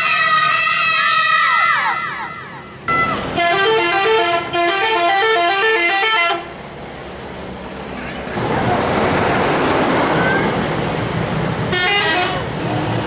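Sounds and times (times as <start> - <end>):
road traffic noise: 0.0 - 13.0
multi-tone musical bus horn: 2.9 - 6.6, 11.7 - 12.6.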